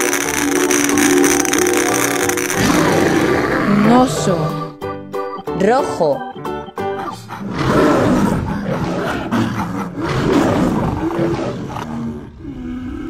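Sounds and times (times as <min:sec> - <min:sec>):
wild animal roaring: 0:00.0 - 0:04.7, 0:07.3 - 0:13.0.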